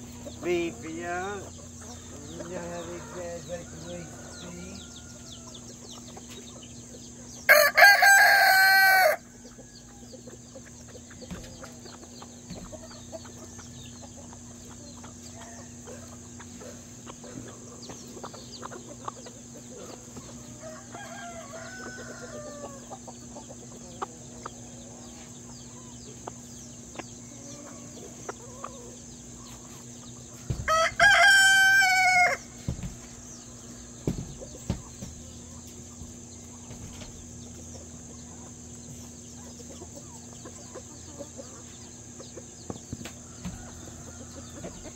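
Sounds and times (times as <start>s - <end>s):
chickens clucking: 0.0s - 44.9s
rooster crowing: 2.2s - 5.7s, 7.5s - 10.2s, 20.4s - 23.0s, 30.5s - 32.6s, 43.2s - 44.9s.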